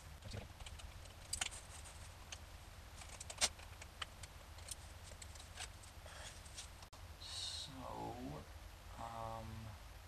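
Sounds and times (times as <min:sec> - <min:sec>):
hard drive in metal caddy clicking: 0:03.0 - 0:05.8.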